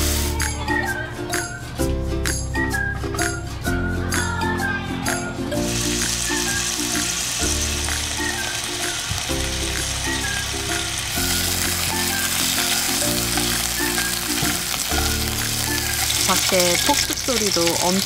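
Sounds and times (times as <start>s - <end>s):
meat sizzling in a grill pan: 5.7s - 18.0s.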